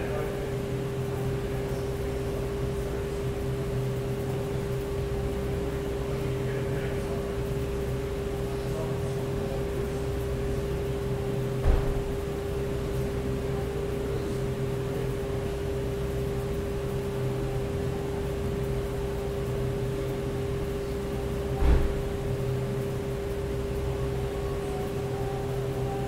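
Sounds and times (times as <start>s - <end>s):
steady mechanical hum: 0.0s - 26.0s
dull thump: 11.6s - 12.1s, 21.6s - 22.0s.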